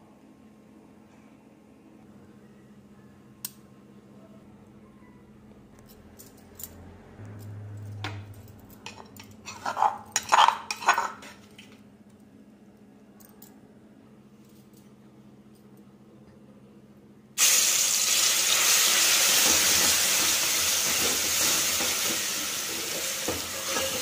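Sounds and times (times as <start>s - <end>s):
spoon scraping stone mortar: 8.9s - 11.4s.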